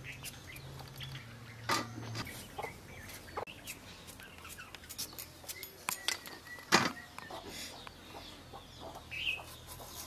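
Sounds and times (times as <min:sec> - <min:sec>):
chickens clucking: 0:01.5 - 0:04.8, 0:06.0 - 0:10.0.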